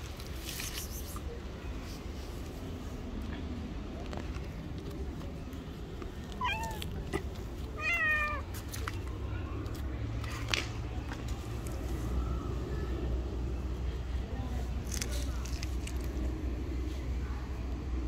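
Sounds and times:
cat meowing: 6.4 - 7.0, 7.8 - 8.4.

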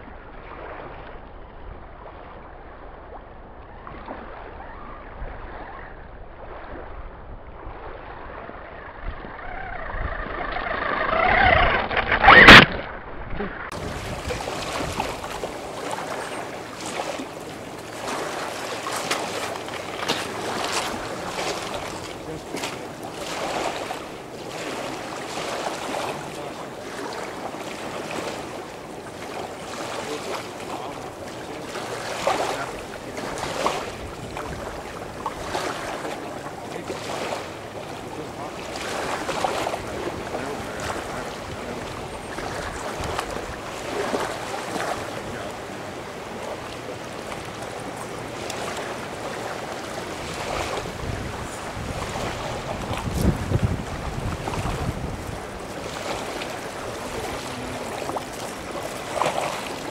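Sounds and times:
wind on microphone: 0.0 - 31.2, 31.8 - 59.9
waves washing onto stony shore: 13.7 - 59.9.

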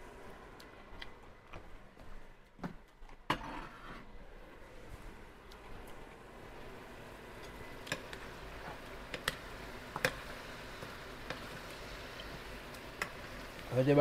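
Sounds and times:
chicken sizzling in a pan: 6.7 - 14.0.

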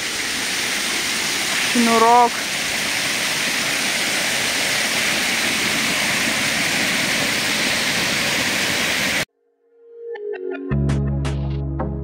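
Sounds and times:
waterfall rushing into pool: 0.0 - 9.3.

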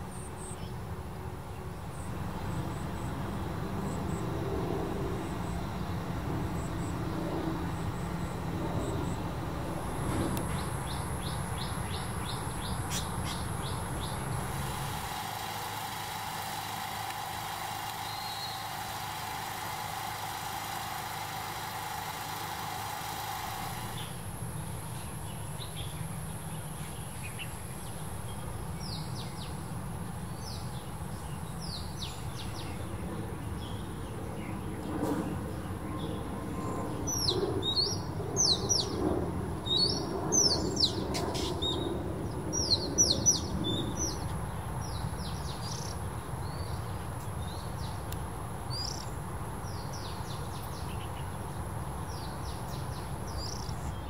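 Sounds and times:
traffic hum: 0.0 - 54.0
birds chirping: 5.2 - 24.3.

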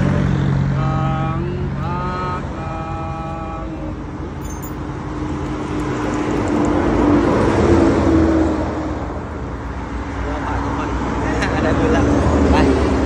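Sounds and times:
low engine hum: 0.0 - 13.0
vehicle passing close by: 0.0 - 13.0.

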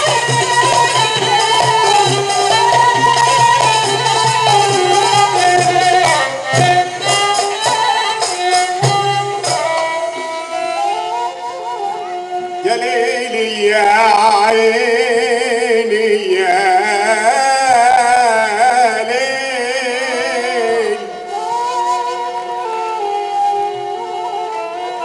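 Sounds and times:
man singing with ornamented pitch: 0.0 - 8.7, 12.6 - 22.0
held flute notes: 0.0 - 13.2, 20.8 - 25.0.

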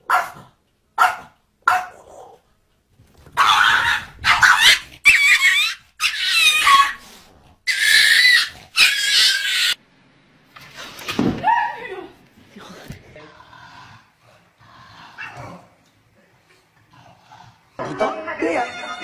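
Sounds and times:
small dogs barking and yapping: 0.0 - 2.4, 3.3 - 7.1, 7.7 - 9.8.

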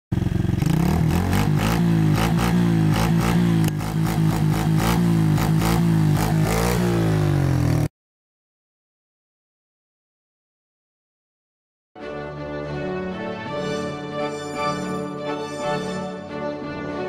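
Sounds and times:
quad bike engine revving: 0.1 - 7.9.

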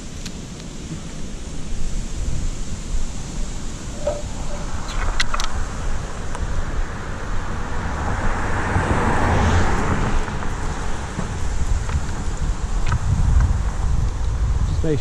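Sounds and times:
longboard wheels rolling on asphalt: 0.0 - 15.0
wind rushing over microphone: 0.0 - 15.0.

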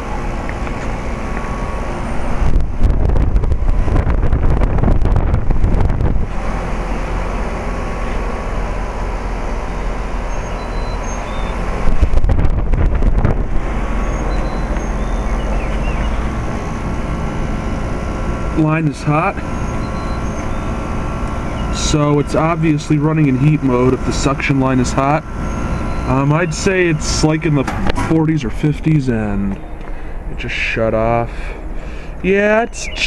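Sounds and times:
wind buffeting microphone: 0.0 - 10.2, 11.4 - 18.6
heat pump humming: 0.0 - 33.0.

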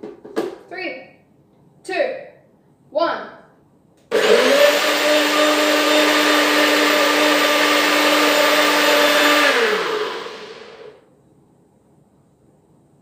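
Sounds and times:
blender motor whining: 4.1 - 11.0.

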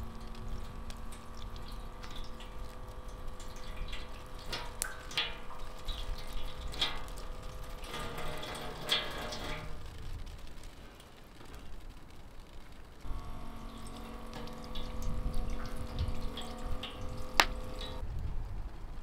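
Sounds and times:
water running into metal sink: 0.0 - 9.9, 13.1 - 18.0
pump hum: 0.0 - 10.0, 13.0 - 18.0.

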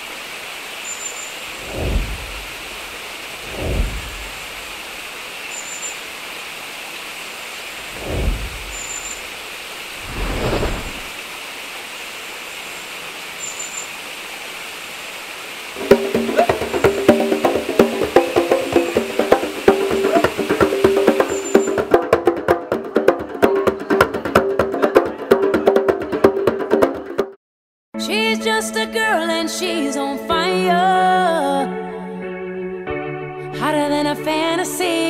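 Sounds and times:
rain hissing: 0.0 - 21.9
low thunder rolls: 1.6 - 4.8, 7.8 - 9.0, 9.9 - 11.2.

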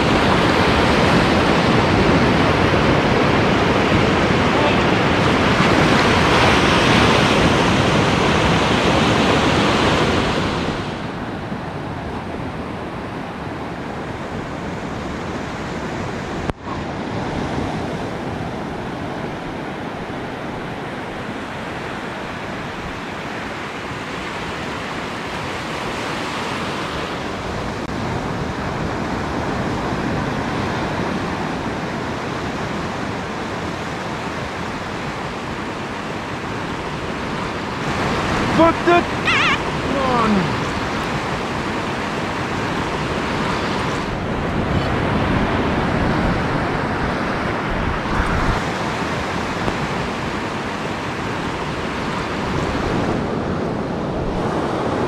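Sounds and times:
wind on the microphone: 0.0 - 24.3, 25.9 - 55.0
surf washing up a beach: 0.0 - 55.0.

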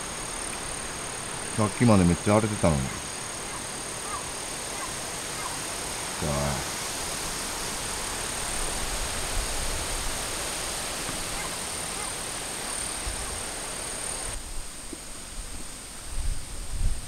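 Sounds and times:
high-pitched continuous drone: 0.0 - 6.8
steady hiss: 0.0 - 17.0
wind rumbling on microphone: 14.2 - 17.0.

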